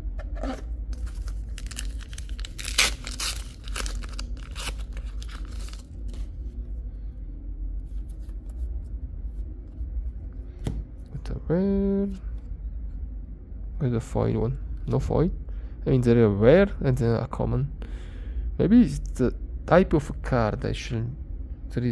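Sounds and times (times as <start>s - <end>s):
foil wrapper tearing and crinkling: 1.0s - 6.3s.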